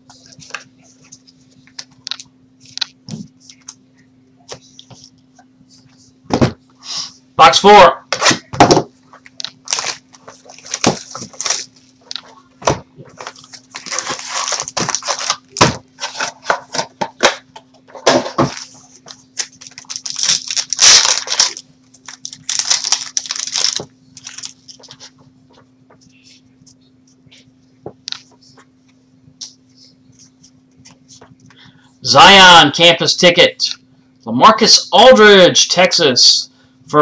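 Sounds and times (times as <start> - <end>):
plastic wrapping crinkling and tearing: 9.2 - 12.3, 13.0 - 16.5, 18.4 - 25.1.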